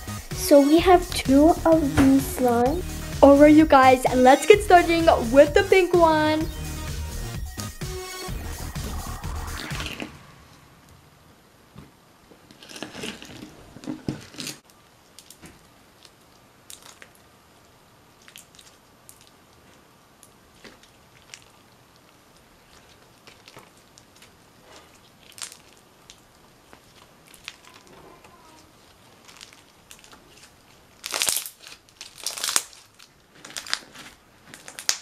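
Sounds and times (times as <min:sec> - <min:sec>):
slime squishing and crackling: 0:12.5 - 0:17.3, 0:18.1 - 0:35.0.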